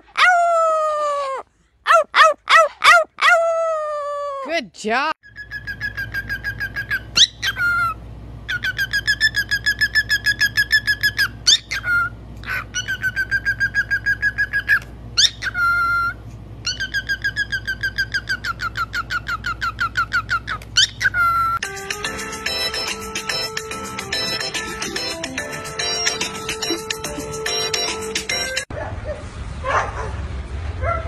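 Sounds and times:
cockatiel whistling and chirping: 0:05.3 - 0:21.6.

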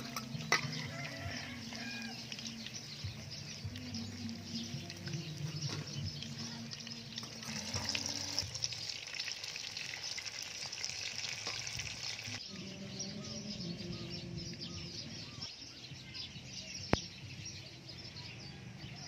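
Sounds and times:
hot oil sizzling and crackling: 0:00.0 - 0:12.5.

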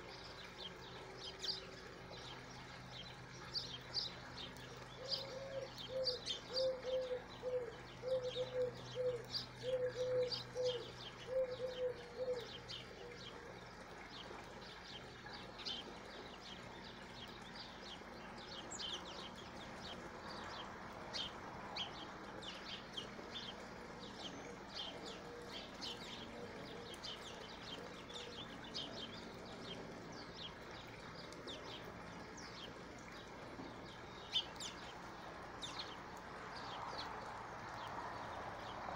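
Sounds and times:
small birds chirping: 0:00.0 - 0:38.9
dove cooing: 0:05.0 - 0:13.8, 0:24.0 - 0:28.9.

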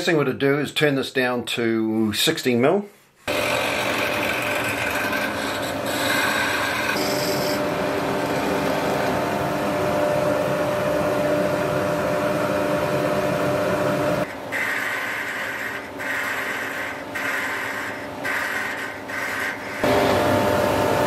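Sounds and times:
lathe motor hum: 0:03.3 - 0:21.0.

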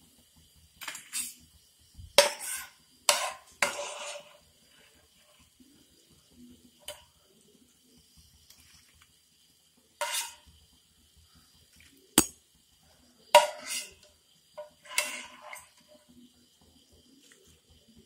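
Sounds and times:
scraping metal clatter: 0:14.6 - 0:15.9.

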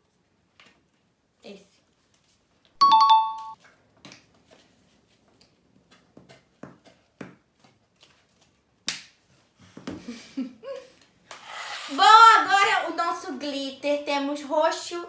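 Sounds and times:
two-note electronic chime: 0:02.8 - 0:03.6.

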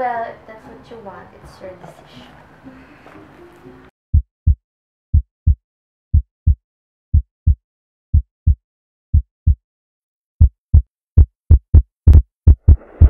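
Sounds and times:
heartbeat double thump: 0:10.4 - 0:13.0.

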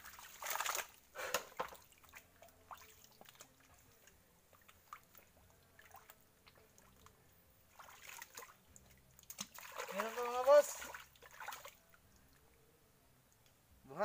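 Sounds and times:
hands digging in mud and water: 0:00.0 - 0:03.7, 0:09.2 - 0:11.8.

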